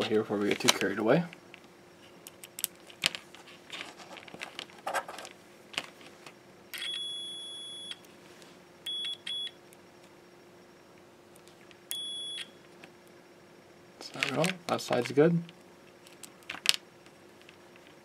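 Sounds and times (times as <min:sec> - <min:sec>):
multimeter beeps: 0:06.7 - 0:08.1, 0:08.8 - 0:09.6, 0:11.9 - 0:12.6.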